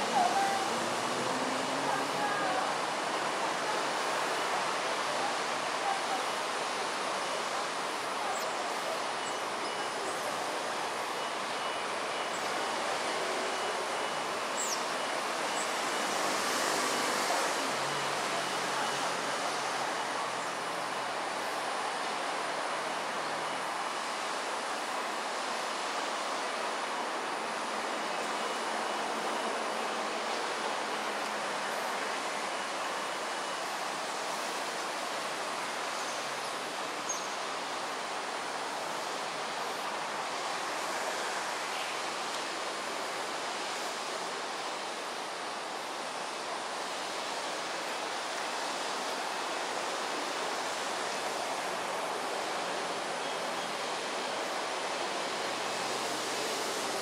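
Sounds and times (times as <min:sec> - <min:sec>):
distant city traffic: 0:00.0 - 0:07.6, 0:08.2 - 0:23.4.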